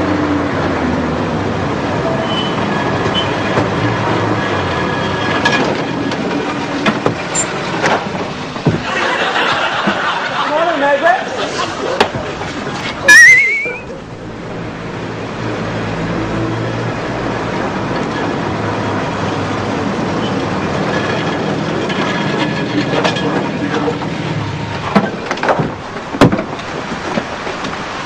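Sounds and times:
rising warbling whistle: 13.1 - 14.0.

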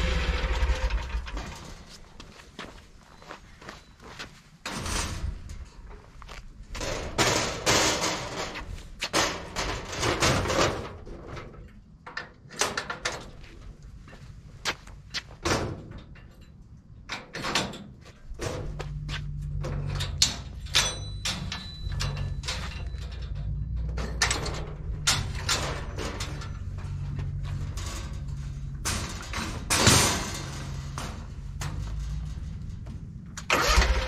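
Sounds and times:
metal ramp clanking and rattling: 0.0 - 2.2, 4.7 - 6.1, 6.7 - 13.4, 15.4 - 34.0
steady low hum: 0.0 - 4.6, 18.1 - 34.0.

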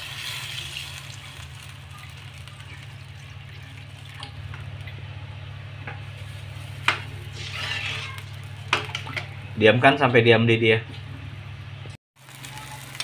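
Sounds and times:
water trickling into a wok: 0.0 - 5.1
steady low hum: 1.1 - 12.0.

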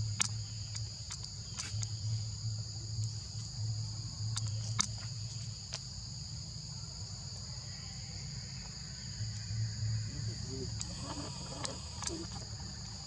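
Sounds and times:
high-pitched insect chorus: 0.0 - 13.0
low hum: 8.0 - 13.0.

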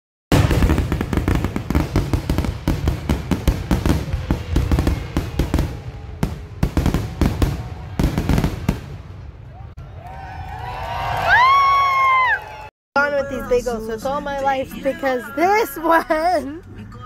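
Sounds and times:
fireworks bangs and crackle: 0.3 - 9.8.

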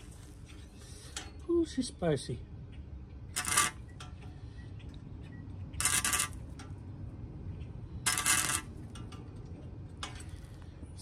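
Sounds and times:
welder crackling buzz: 3.4 - 3.8, 5.8 - 6.4, 8.1 - 8.7.

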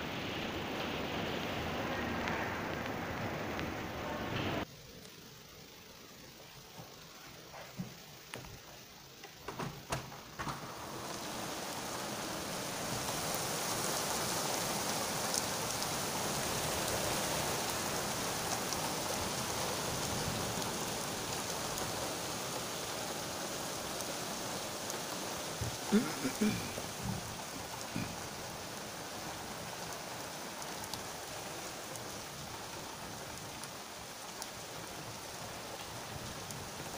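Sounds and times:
heavy rain hissing: 0.0 - 36.9
raindrops tapping a surface: 6.6 - 36.9.

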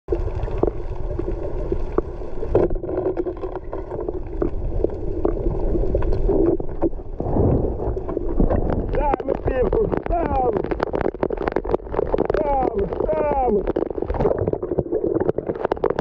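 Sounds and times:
muffled underwater rumble: 0.1 - 16.0
sharp underwater clicks: 2.5 - 16.0.

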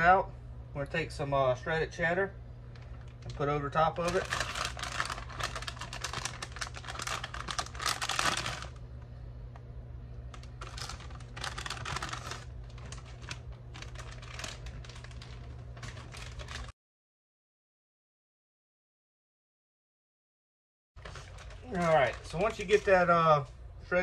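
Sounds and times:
steady low hum: 0.0 - 16.7, 21.0 - 24.0
plastic bag crinkling: 2.7 - 8.8, 10.3 - 16.7, 21.0 - 23.1.

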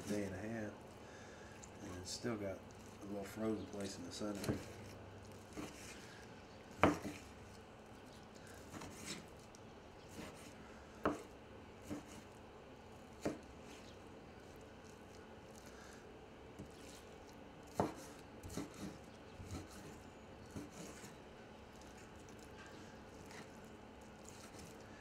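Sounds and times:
knife chopping on wooden board: 4.3 - 6.0, 6.8 - 7.3, 8.7 - 9.3, 10.1 - 12.3, 13.2 - 13.5, 17.7 - 21.1.

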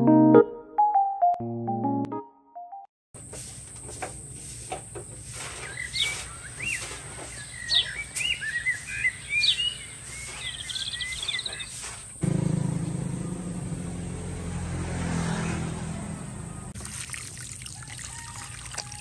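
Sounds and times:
birds chirping: 4.2 - 12.2
low engine-like hum: 12.2 - 16.8.

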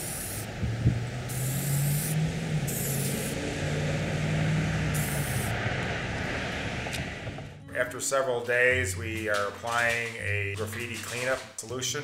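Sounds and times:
spray paint can hissing: 0.0 - 0.5, 1.3 - 3.4, 4.9 - 5.5
low drone: 0.0 - 9.2.

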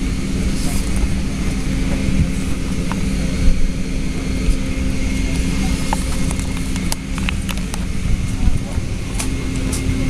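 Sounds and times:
aircraft cabin drone: 0.0 - 10.0.

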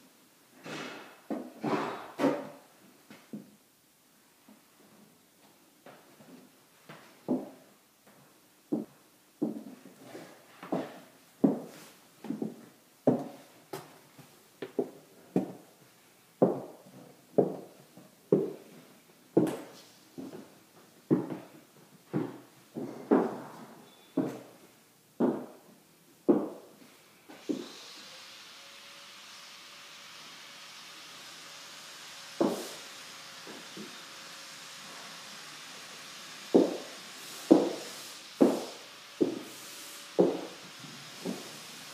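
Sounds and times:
echoing footsteps on bare floor: 4.8 - 15.8, 16.4 - 18.8, 19.4 - 24.6, 25.2 - 25.7, 26.3 - 26.6, 32.4 - 32.6, 36.6 - 36.9, 37.5 - 37.8, 38.4 - 39.5, 40.2 - 40.5.

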